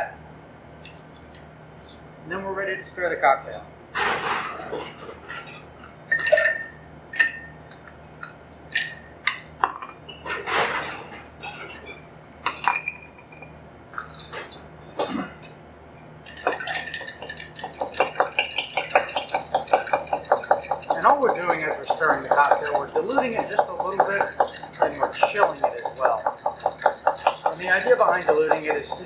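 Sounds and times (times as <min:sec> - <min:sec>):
ice clinking into a glass: 0:06.1 - 0:07.5, 0:16.3 - 0:29.0
bar spoon stirring ice: 0:08.0 - 0:09.4, 0:16.3 - 0:29.0.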